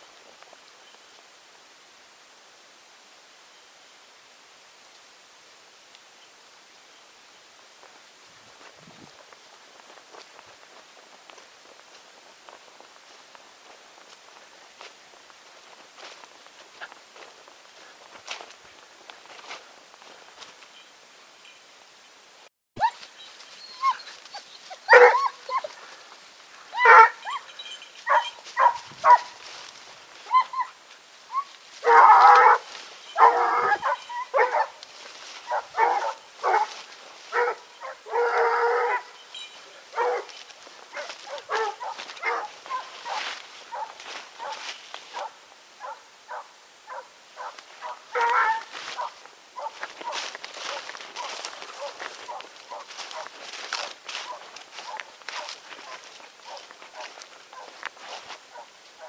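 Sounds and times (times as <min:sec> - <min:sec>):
hound baying and barking: 0:22.8 - 0:26.0, 0:26.7 - 0:29.5, 0:30.2 - 0:59.0.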